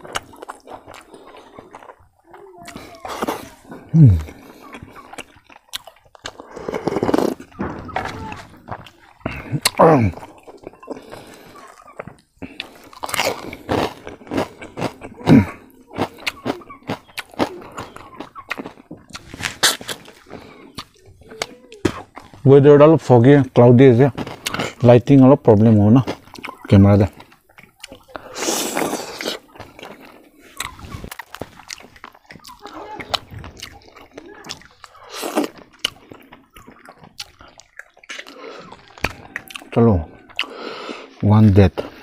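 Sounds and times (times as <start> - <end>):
person sucking food: 0.0 - 7.5, 8.2 - 22.4, 26.3 - 41.2
chewing crunchy pork rinds: 0.0 - 42.0.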